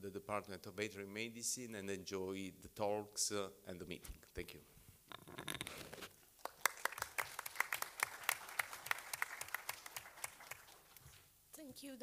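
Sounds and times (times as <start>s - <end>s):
small audience applauding: 6.4s - 11.2s.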